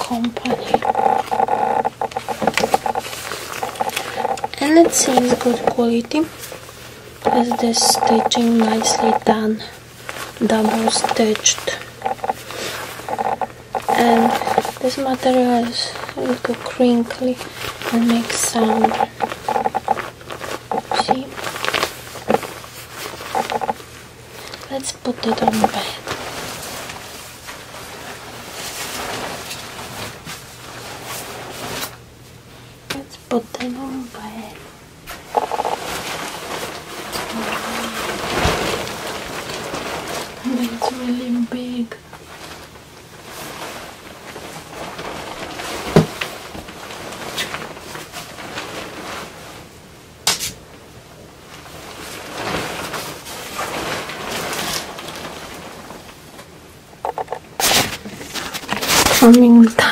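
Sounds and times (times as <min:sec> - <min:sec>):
comforter fabric rustling: 0:25.7 - 0:32.0, 0:35.2 - 0:41.4, 0:42.0 - 0:49.9, 0:50.6 - 0:56.7.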